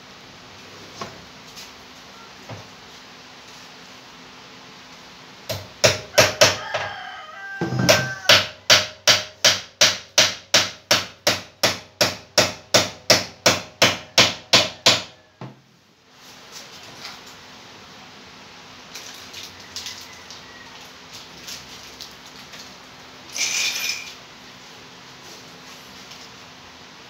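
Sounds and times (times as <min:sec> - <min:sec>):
rooster crowing: 0:06.1 - 0:08.7, 0:15.0 - 0:15.5, 0:19.4 - 0:21.1
hammer blows on wooden cabinet: 0:07.6 - 0:15.6.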